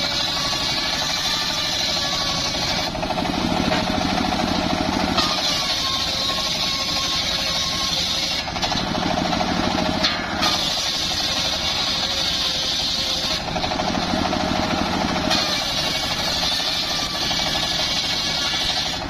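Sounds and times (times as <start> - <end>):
circular saw blade cutting wood: 0.0 - 19.0
sawmill engine thrumming: 0.0 - 19.0.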